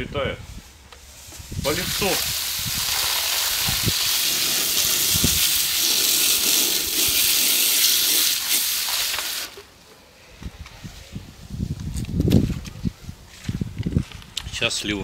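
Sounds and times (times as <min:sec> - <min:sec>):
water spraying from a hose: 0:01.6 - 0:09.7.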